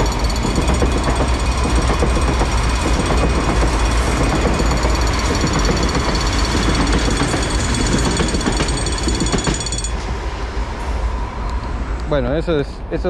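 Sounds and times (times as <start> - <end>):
train wheels clattering over rails: 0.0 - 10.4
steady high ringing: 0.0 - 10.6.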